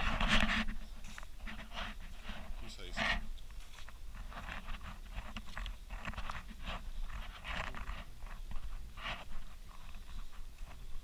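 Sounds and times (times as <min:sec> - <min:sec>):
footsteps: 0:00.0 - 0:11.0
wind on microphone: 0:00.0 - 0:11.0.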